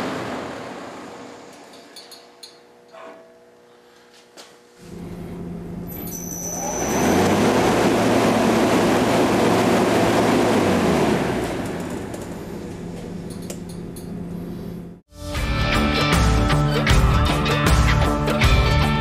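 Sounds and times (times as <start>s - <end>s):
fan motor hum: 0.0s - 15.1s.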